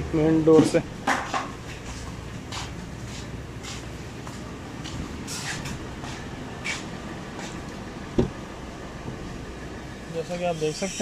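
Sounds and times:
footsteps on concrete floor: 0.6 - 7.7.

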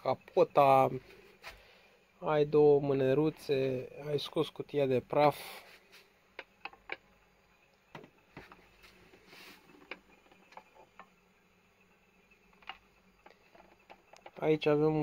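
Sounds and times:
short rub on plastic: 8.8 - 9.7.

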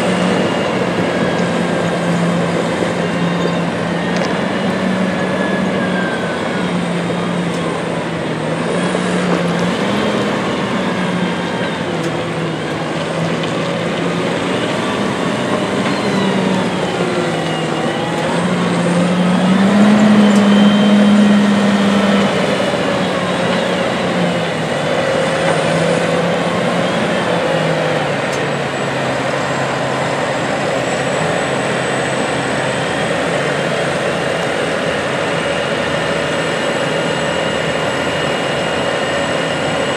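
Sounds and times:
tractor diesel engine pulling: 0.0 - 39.9.

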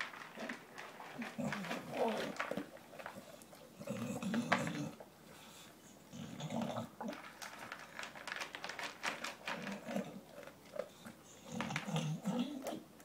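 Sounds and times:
dog crunching dry kibble: 0.0 - 5.5, 6.1 - 13.0.

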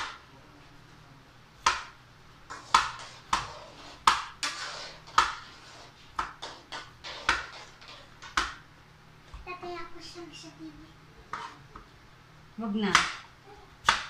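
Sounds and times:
knife chopping on cutting board: 1.6 - 5.5, 6.1 - 8.6, 12.8 - 14.0.

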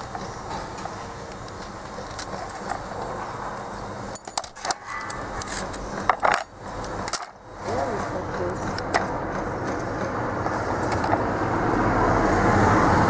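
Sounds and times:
metal rail clicking and clinking: 0.0 - 7.4
steady background noise: 0.0 - 13.0.

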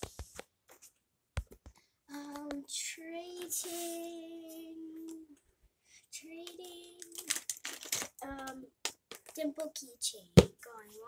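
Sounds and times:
girl singing: 2.1 - 5.4, 6.0 - 7.5, 8.2 - 8.7, 9.4 - 11.0.

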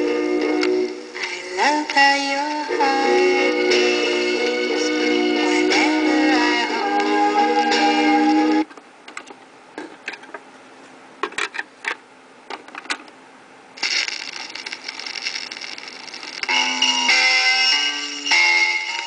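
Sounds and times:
stylus hiss and crackle: 0.0 - 8.7, 13.8 - 19.0
record playing: 0.0 - 9.4, 13.8 - 19.0.

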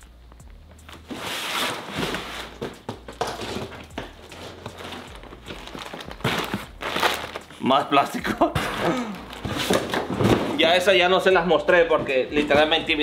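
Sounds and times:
plastic packages crinkling: 4.2 - 8.1.

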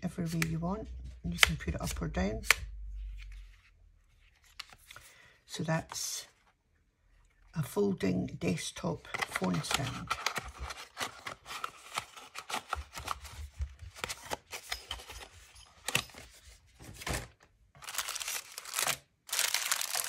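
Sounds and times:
cardboard box closing: 9.2 - 15.2
plastic bags crinkling: 17.1 - 20.0.

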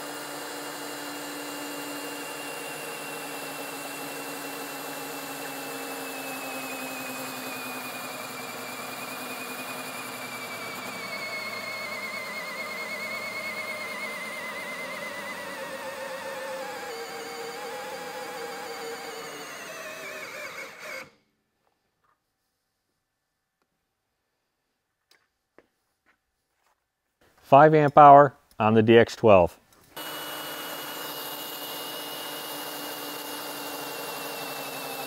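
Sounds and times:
cordless drill motor whine: 0.0 - 21.2, 30.0 - 35.0.

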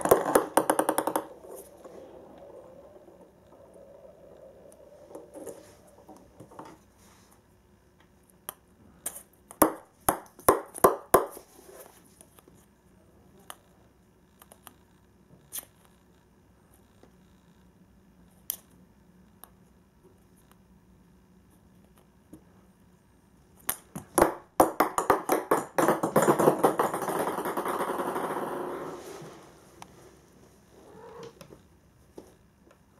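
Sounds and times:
plastic balls bouncing on wood: 0.0 - 6.8, 9.5 - 11.4, 23.6 - 28.9.

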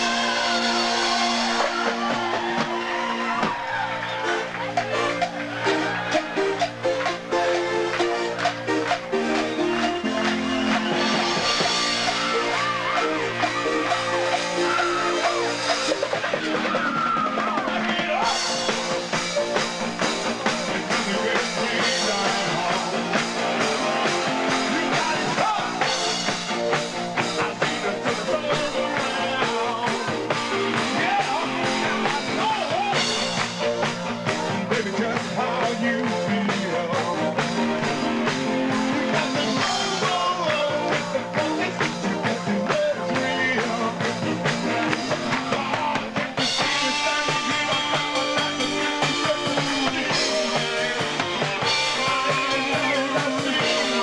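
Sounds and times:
keyboards: 0.0 - 54.0
live rock and roll band: 0.0 - 54.0
steady drum beat: 0.0 - 54.0
man singing: 17.4 - 18.8, 20.4 - 26.2, 27.3 - 33.4, 34.4 - 37.8, 38.9 - 54.0.

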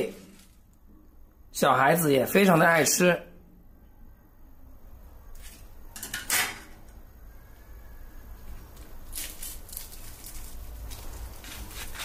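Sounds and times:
fried batter crackling and crunching: 8.5 - 12.0.

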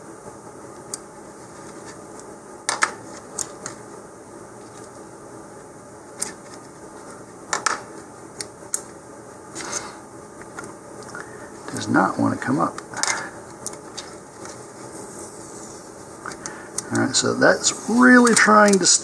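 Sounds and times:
faint hiss: 14.8 - 19.0.

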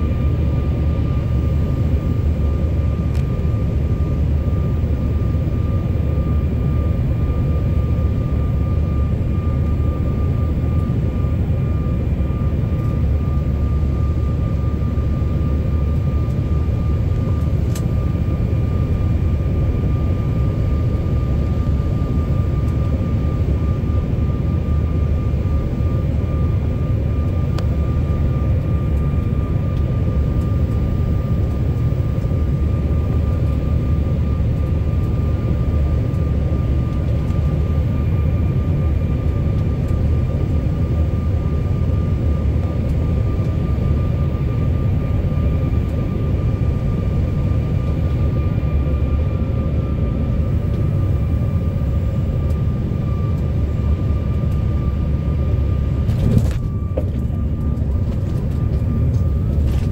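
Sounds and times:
airliner engine rumble: 0.0 - 59.9
thin whine: 41.4 - 59.9.

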